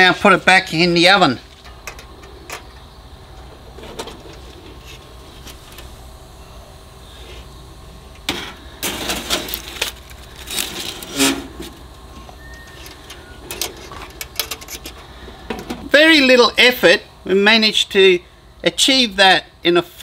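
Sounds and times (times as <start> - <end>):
foil crinkling: 8.8 - 14.9.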